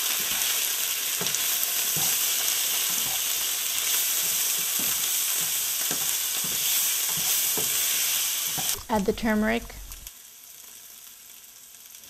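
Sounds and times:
potato wedges sizzling in oil: 0:00.0 - 0:12.0
spatula scraping a pan: 0:00.2 - 0:08.8.

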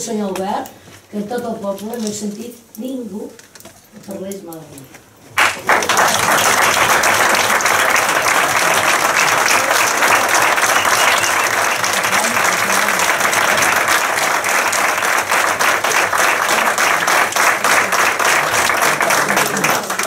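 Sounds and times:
crowd applauding: 0:05.4 - 0:20.0.

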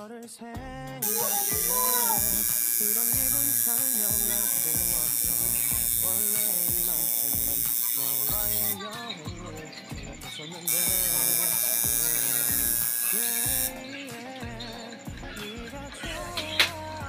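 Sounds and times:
background music: 0:00.0 - 0:17.0
tattoo machine buzzing: 0:01.0 - 0:09.0, 0:10.0 - 0:13.9.

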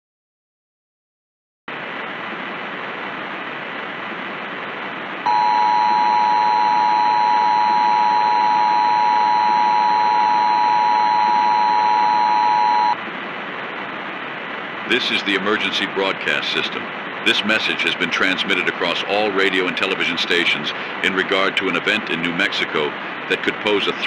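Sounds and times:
static hiss: 0:01.7 - 0:24.0
two-tone attention signal: 0:05.3 - 0:13.0.

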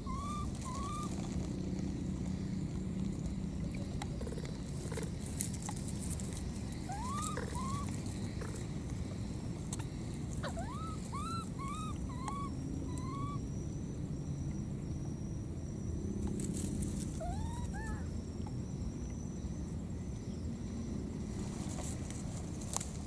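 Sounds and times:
baby macaque cooing: 0:00.0 - 0:01.3, 0:06.7 - 0:08.7, 0:09.8 - 0:13.4, 0:17.1 - 0:18.1.

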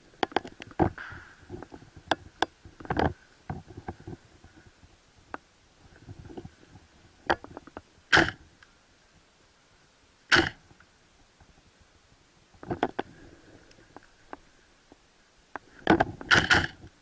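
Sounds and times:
gear clicks and rustling: 0:00.1 - 0:08.7, 0:12.5 - 0:17.0
airsoft gunshots: 0:08.1 - 0:08.4, 0:10.3 - 0:10.6.

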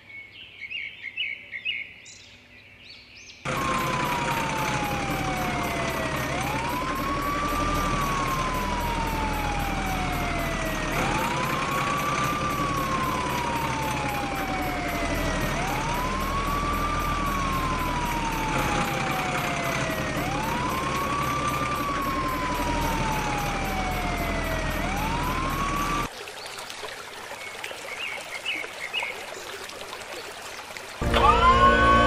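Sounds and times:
siren wailing: 0:03.5 - 0:26.1, 0:31.0 - 0:32.0
water rushing: 0:03.5 - 0:32.0.

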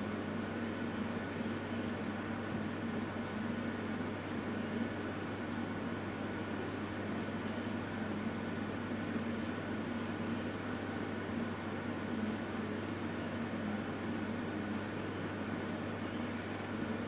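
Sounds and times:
gas heater hissing: 0:00.0 - 0:17.0
low constant hum: 0:00.0 - 0:17.0.

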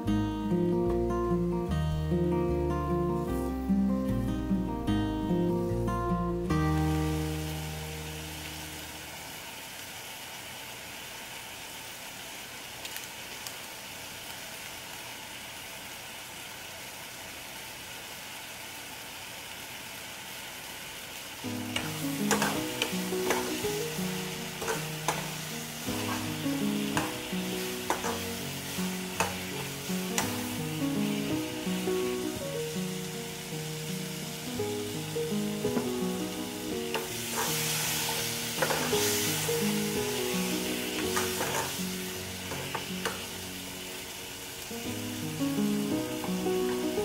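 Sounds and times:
background music: 0:00.0 - 0:08.5, 0:21.5 - 0:44.2
vegetables sizzling in oil: 0:01.6 - 0:47.0
metal ladle stirring in pan: 0:24.6 - 0:28.2, 0:37.3 - 0:39.2.

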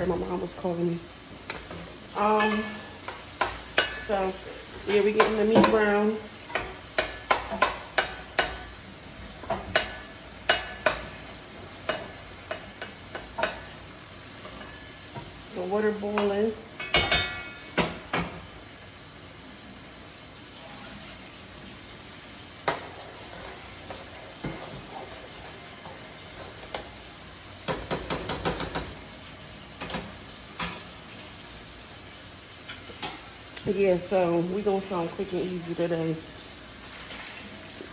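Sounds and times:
meat sizzling: 0:00.0 - 0:37.9
spatula scraping a skillet: 0:02.3 - 0:11.2, 0:11.8 - 0:15.1, 0:22.6 - 0:27.1, 0:36.9 - 0:37.8.

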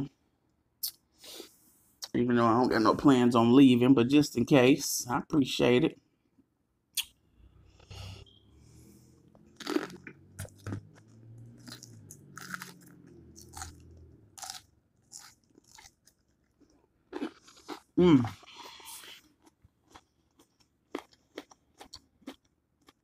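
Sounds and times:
wet mouth sounds: 0:06.9 - 0:07.2
crisp food crunches: 0:09.6 - 0:13.8.

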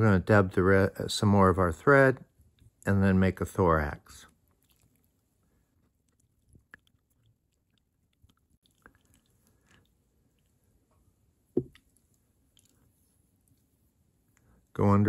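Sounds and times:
soft handling clicks and rubs: 0:04.3 - 0:14.7.

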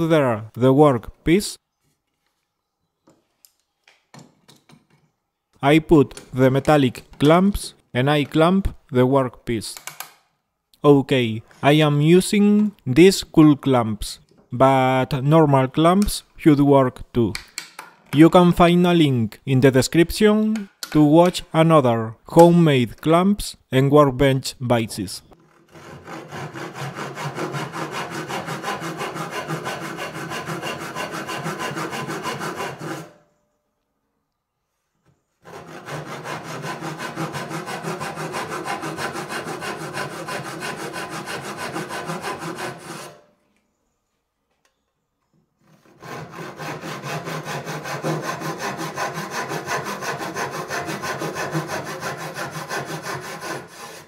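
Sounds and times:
hand saw cutting wood: 0:25.3 - 0:33.2, 0:35.4 - 0:43.3, 0:45.6 - 0:54.0.

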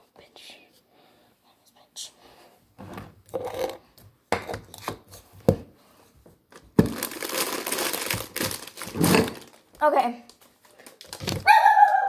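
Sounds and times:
containers rubbing and clattering: 0:03.2 - 0:05.3, 0:06.9 - 0:09.6.

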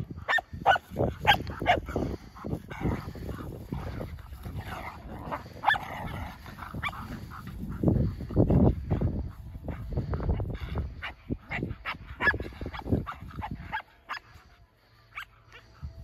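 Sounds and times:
dogs yipping and whimpering: 0:00.2 - 0:02.0, 0:04.6 - 0:07.9, 0:10.3 - 0:14.4.

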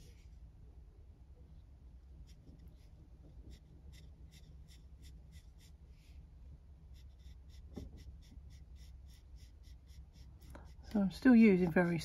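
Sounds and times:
paintbrush scratching on paper: 0:02.2 - 0:06.2, 0:06.9 - 0:12.0.

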